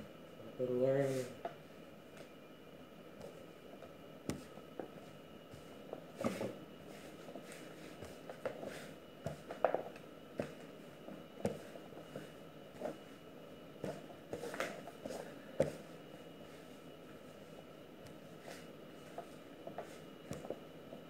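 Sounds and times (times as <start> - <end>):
dough thudding and slapping: 3.2 - 13.1, 13.8 - 15.9, 18.0 - 21.0.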